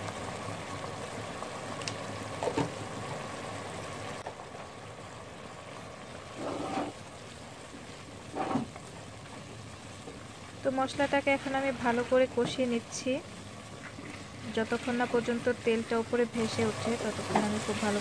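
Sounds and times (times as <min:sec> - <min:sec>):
masala sizzling in oil: 0:00.0 - 0:18.0
spatula scraping a pot: 0:06.3 - 0:07.0.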